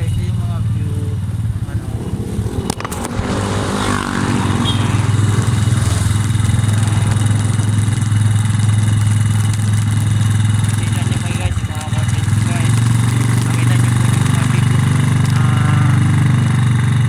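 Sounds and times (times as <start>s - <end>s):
motorcycle engine running: 0.0s - 17.0s
sharp clicks: 6.3s - 15.4s.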